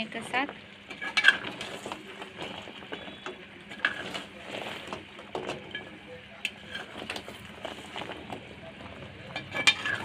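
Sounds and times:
metal spoon stirring syrup: 0.8 - 10.0.

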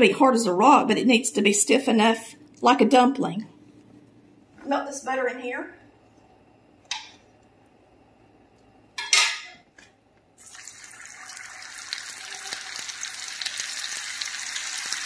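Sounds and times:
butter sizzling in hot pan: 10.4 - 15.0.

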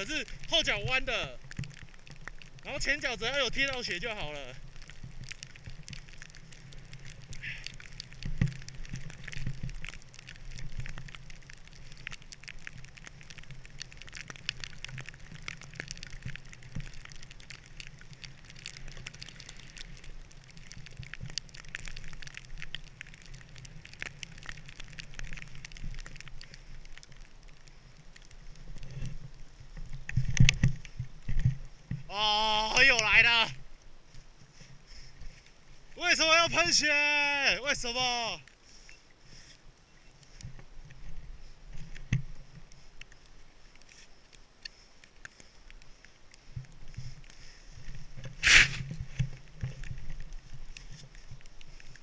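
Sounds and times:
snowboard hissing through powder: 48.4 - 49.2.

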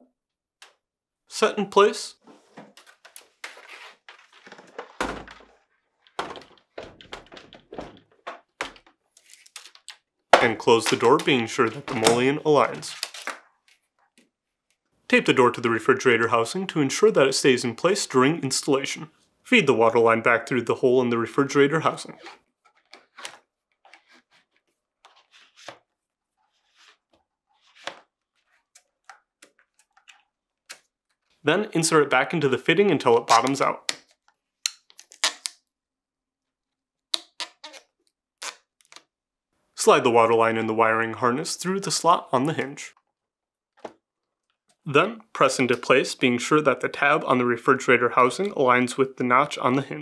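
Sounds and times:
plastic tubing rustling and scraping: 2.2 - 14.8, 21.9 - 31.4
heavy door thunk: 5.0 - 5.5, 6.2 - 8.2.

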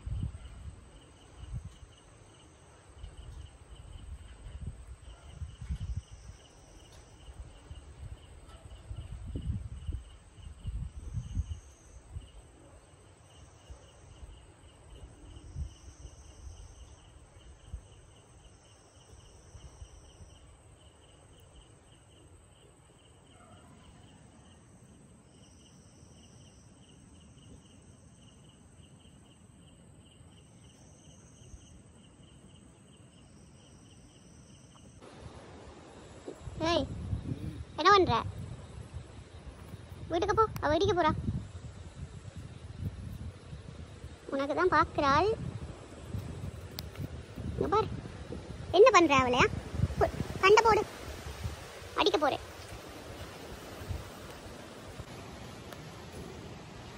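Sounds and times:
cricket chirps: 0.0 - 56.9
insect buzzing calls: 0.0 - 56.9.

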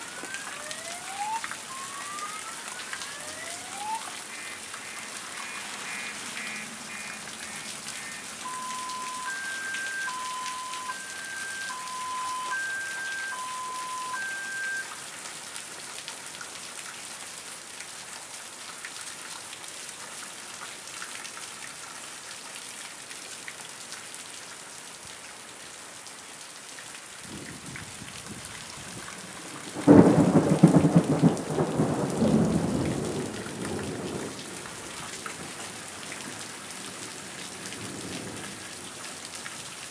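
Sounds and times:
two-tone siren: 0.0 - 15.0
heavy rain on trees and grass: 0.0 - 39.9
thunder rumbling: 29.4 - 34.5.

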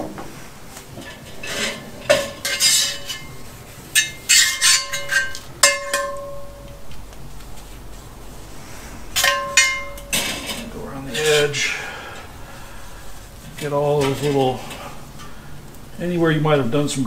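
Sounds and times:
metal tongs scraping cast iron skillet: 1.0 - 6.9, 9.2 - 12.4, 13.1 - 15.5.

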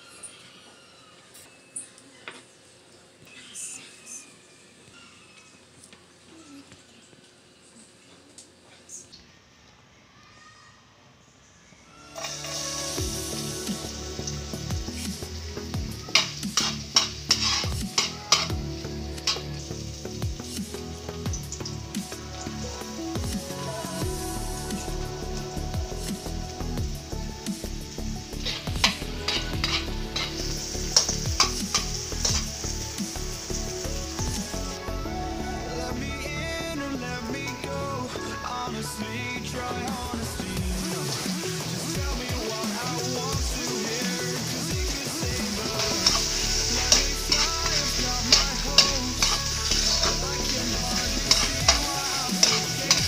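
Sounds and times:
onion sizzling in hot oil: 12.1 - 53.0
metal spatula scraping a wok: 12.2 - 13.1, 16.1 - 18.5, 28.4 - 32.8, 45.4 - 53.0.

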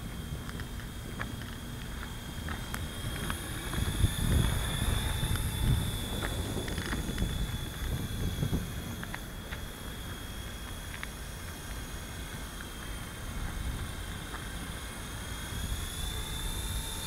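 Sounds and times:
high-pitched whine: 0.0 - 17.0
wind buffeting microphone: 1.9 - 10.8.

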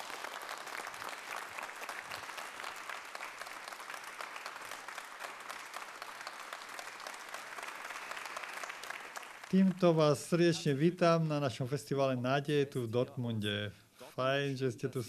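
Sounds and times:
audience applauding: 0.0 - 10.4.

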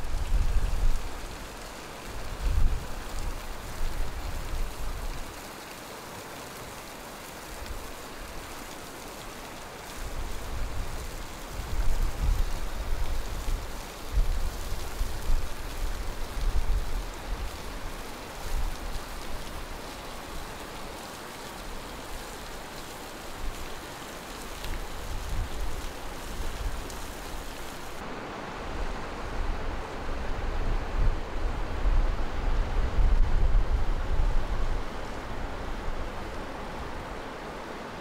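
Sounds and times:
wind on microphone: 0.0 - 1.5, 2.2 - 5.2, 10.1 - 19.5, 24.7 - 27.5, 28.7 - 37.2.

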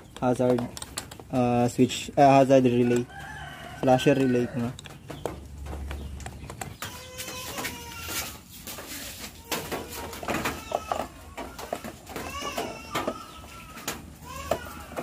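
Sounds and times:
plastic cowling clicks and knocks: 0.0 - 1.5, 9.5 - 15.0.

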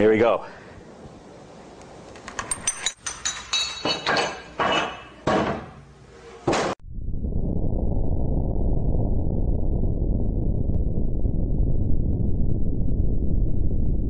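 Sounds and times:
low rumble of explosion: 6.8 - 14.0.

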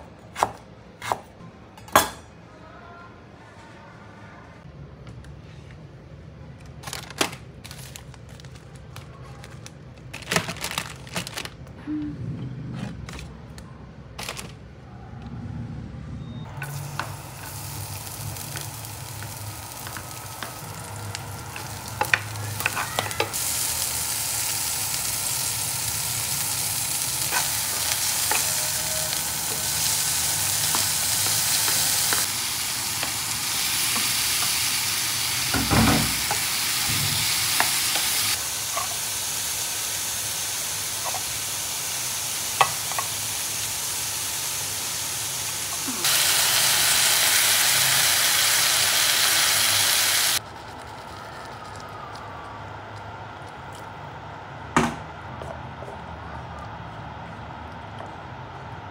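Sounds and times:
kitchenware clinking: 1.7 - 2.4
food sizzling in frying pan: 16.6 - 50.7.

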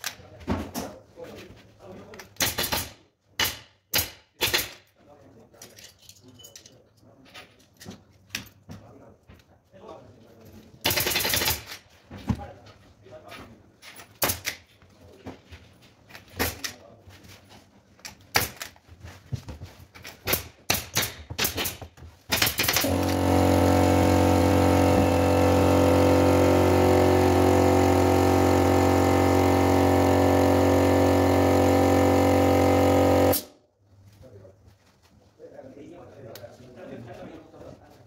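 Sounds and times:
pneumatic staple gun firing: 2.4 - 4.8, 10.8 - 11.8, 14.2 - 14.7, 20.2 - 33.6
air compressor motor running: 22.7 - 33.5.

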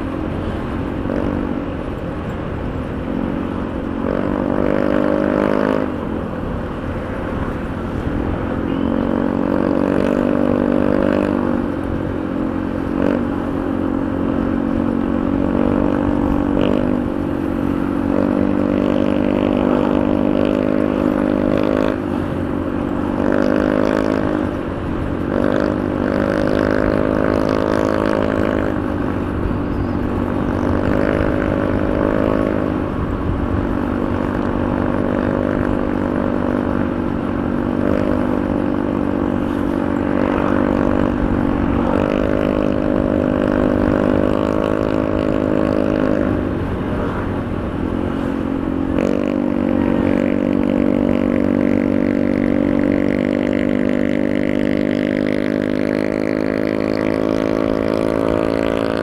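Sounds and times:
scooter engine running: 0.0 - 59.0
wind noise: 14.5 - 53.6.

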